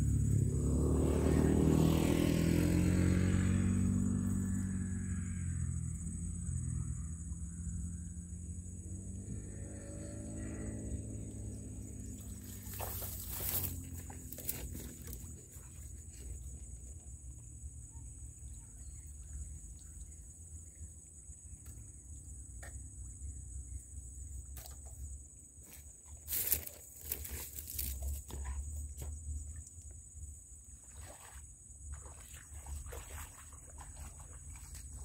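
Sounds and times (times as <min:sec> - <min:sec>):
high insect drone: 0:00.0 - 0:32.4
splashes and rustles in water: 0:10.8 - 0:16.9, 0:25.8 - 0:29.8, 0:30.4 - 0:35.0.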